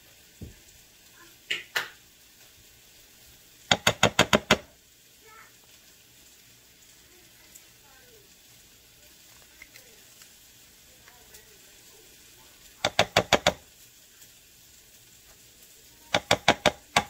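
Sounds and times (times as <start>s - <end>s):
spatula knocking on glass dish: 3.7s - 4.6s, 12.8s - 13.6s, 16.2s - 17.0s.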